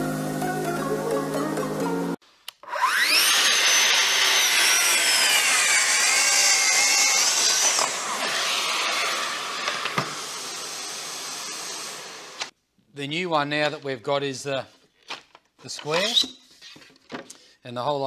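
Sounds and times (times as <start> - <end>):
track saw whining: 2.6 - 12.5.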